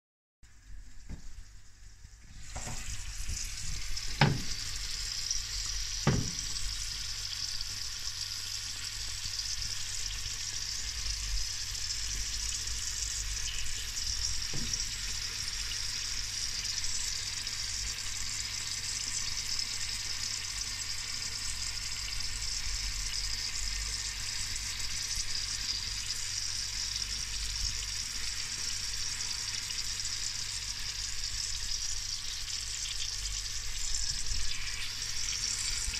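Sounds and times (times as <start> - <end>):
sausages sizzling on a metal tray: 0.5 - 35.9
sharp knocks: 4.2 - 4.6, 6.1 - 6.5.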